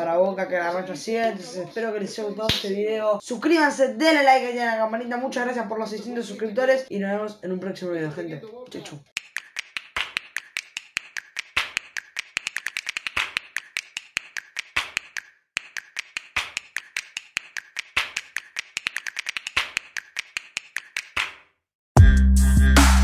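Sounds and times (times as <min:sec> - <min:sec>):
rapid sharp clicks: 0:09.2 - 0:21.4.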